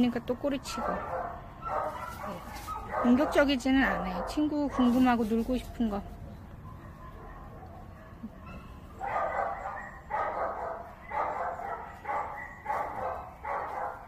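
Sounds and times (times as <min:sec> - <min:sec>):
dog barking: 0:00.7 - 0:05.1, 0:06.6 - 0:14.0.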